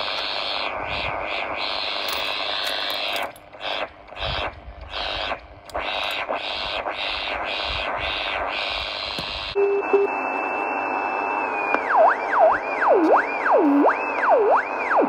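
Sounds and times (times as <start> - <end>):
radio static hiss: 0.0 - 10.7.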